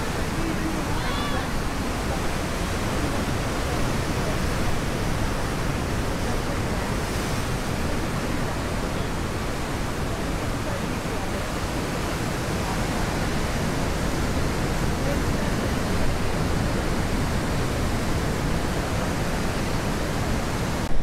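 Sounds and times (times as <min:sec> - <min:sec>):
ocean surf breaking: 0:00.0 - 0:21.0.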